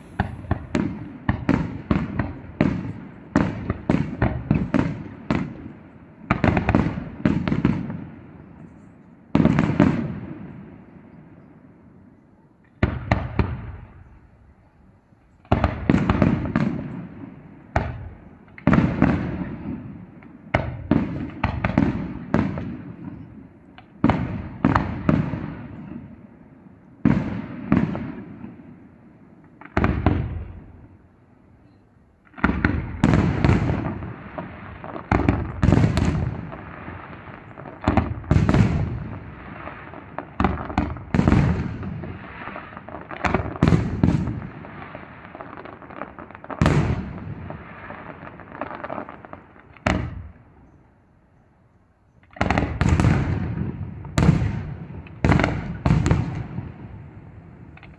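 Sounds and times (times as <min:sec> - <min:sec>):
firework shells bursting: 0:00.0 - 0:03.0.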